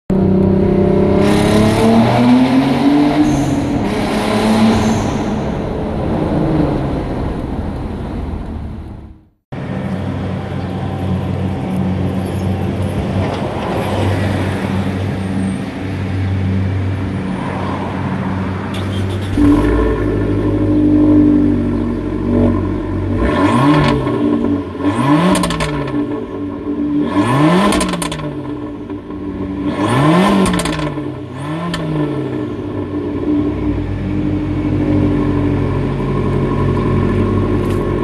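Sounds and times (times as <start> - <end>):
car engine accelerating in tunnel: 0.1 - 10.2, 15.4 - 38.0
car exhaust steady low note: 19.3 - 38.0.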